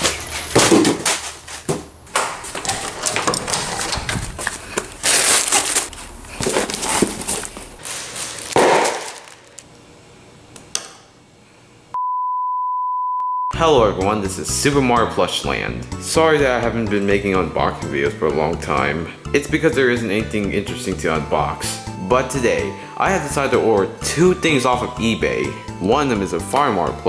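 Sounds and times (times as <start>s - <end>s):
cardboard box rustling and scraping: 2.4s - 8.6s
test-tone beep: 12.0s - 13.6s.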